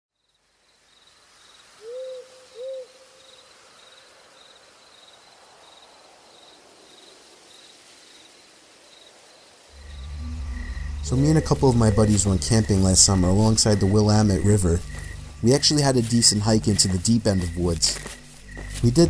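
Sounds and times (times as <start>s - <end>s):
crickets chirping: 0.2s - 19.0s
owl hooting: 1.8s - 3.3s.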